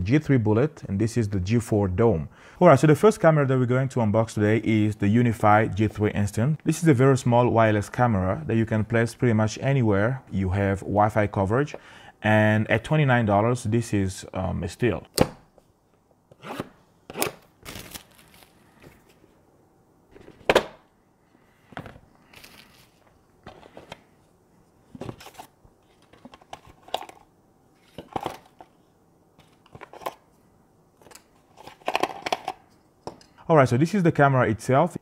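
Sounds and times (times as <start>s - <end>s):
cardboard tearing: 16.5s - 18.6s
packaging rustling: 17.6s - 19.2s, 21.8s - 24.1s.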